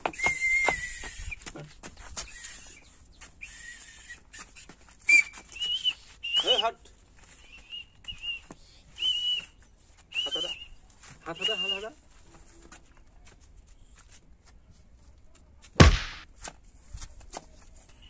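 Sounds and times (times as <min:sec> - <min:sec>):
whistle short blasts: 0:00.2 - 0:01.4, 0:03.4 - 0:04.5, 0:05.1 - 0:06.7.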